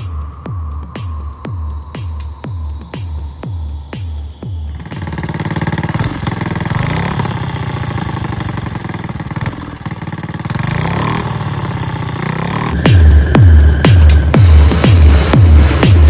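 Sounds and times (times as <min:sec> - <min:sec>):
music: 0:00.0 - 0:06.3, 0:12.2 - 0:16.0
small engine idling: 0:04.4 - 0:16.0.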